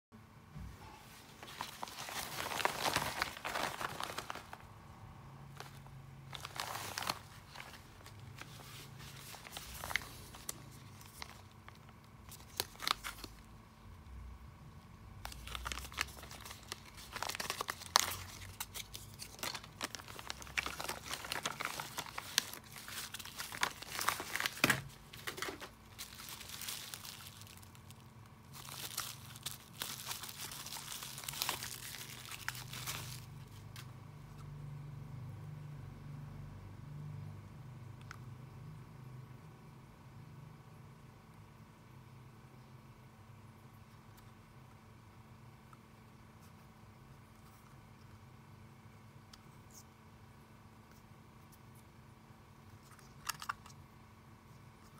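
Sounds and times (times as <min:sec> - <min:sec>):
plastic packaging crinkling: 0:01.3 - 0:04.8, 0:05.5 - 0:13.5, 0:15.2 - 0:33.9, 0:52.8 - 0:53.8.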